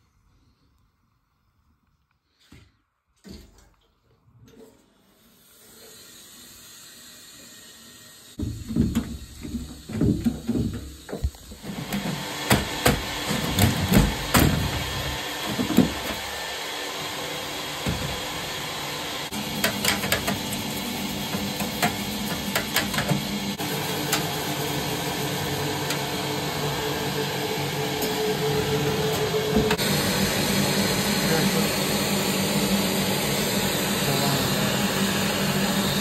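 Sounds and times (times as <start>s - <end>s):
shop vacuum running: 5.5s - 36.0s.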